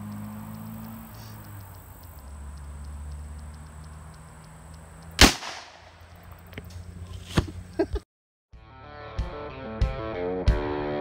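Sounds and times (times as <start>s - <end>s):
revolver gunshot: 5.2s - 6.0s.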